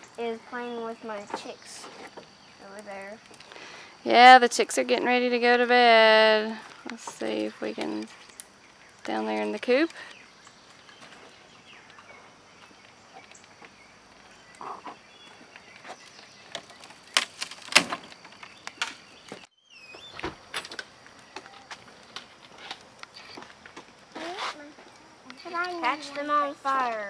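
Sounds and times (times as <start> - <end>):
wood fire crackling and popping: 0.0 - 27.0.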